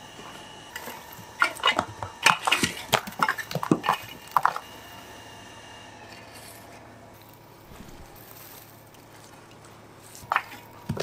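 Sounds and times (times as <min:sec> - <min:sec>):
metal rake scraping through ash: 0:06.1 - 0:09.1.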